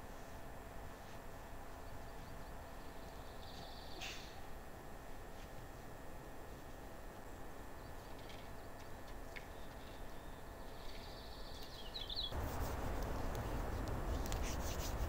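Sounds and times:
bird chirp: 1.8s - 4.3s, 9.4s - 12.4s
campfire flames crackling: 12.4s - 15.0s.

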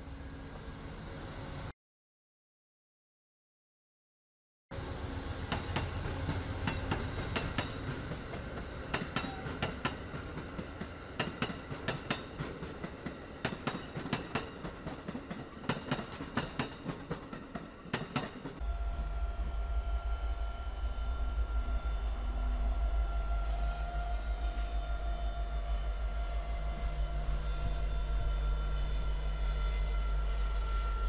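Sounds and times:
passenger train rumble: 0.0s - 1.7s, 4.7s - 31.0s
freight train rumble: 4.7s - 31.0s
train wheels clicking over rail joints: 5.5s - 18.6s.

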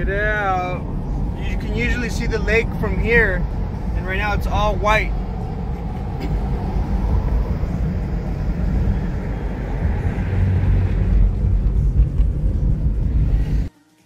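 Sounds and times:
car road and engine rumble: 0.0s - 13.7s.

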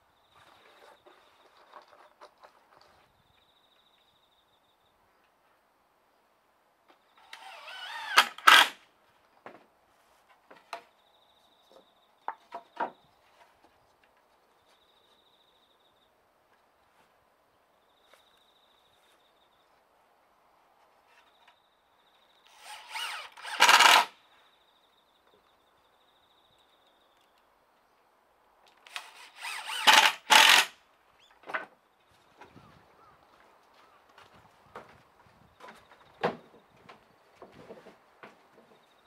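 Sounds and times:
power tool motor spinning up: 7.2s - 8.8s, 22.5s - 24.1s, 28.9s - 30.7s.

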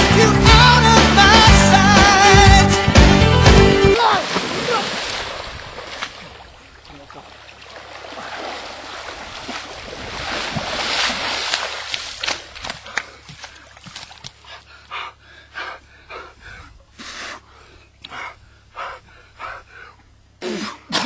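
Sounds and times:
water splashing from wading: 4.0s - 14.7s
rhythmic breathy puffs: 12.8s - 21.0s.

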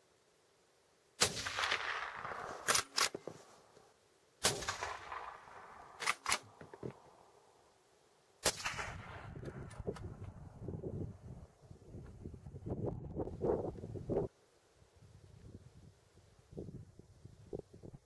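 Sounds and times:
rifle shots echoing: 1.2s - 3.2s, 4.4s - 6.6s, 8.4s - 9.4s.

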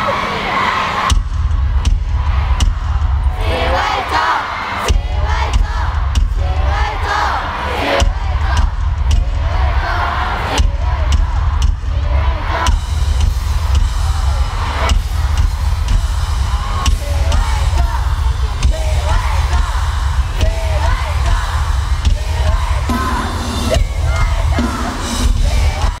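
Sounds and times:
fans yelling and whooping: 0.0s - 26.0s
drum hits: 1.1s - 3.8s, 4.9s - 7.2s, 8.0s - 26.0s
live band music: 14.9s - 26.0s.

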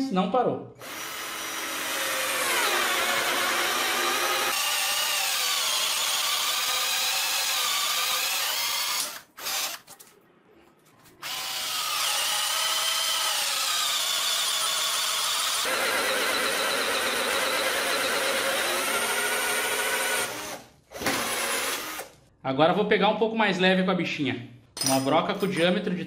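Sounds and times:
cordless drill boring into wood: 0.8s - 9.8s, 11.2s - 22.1s.

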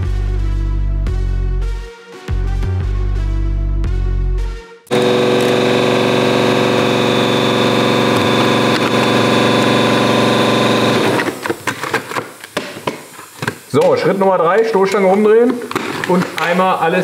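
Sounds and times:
pneumatic orbital sander running: 4.9s - 11.6s
knocks and rustles of handling: 15.4s - 16.7s.

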